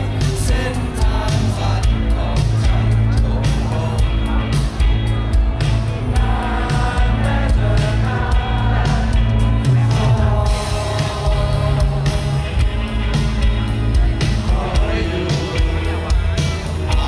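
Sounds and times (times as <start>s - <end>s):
drums: 0.0s - 17.0s
electric guitar: 0.0s - 17.0s
man singing: 0.0s - 17.0s.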